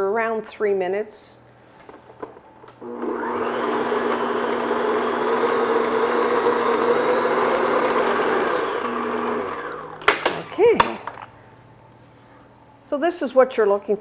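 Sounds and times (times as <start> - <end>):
stand mixer motor whirring: 2.8 - 10.1.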